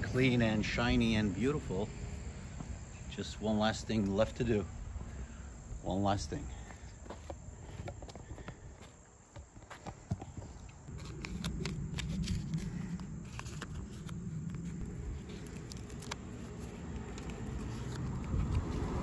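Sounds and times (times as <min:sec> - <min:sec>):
low steady hum: 0:10.0 - 0:19.0
paper backing crinkling: 0:10.9 - 0:18.9.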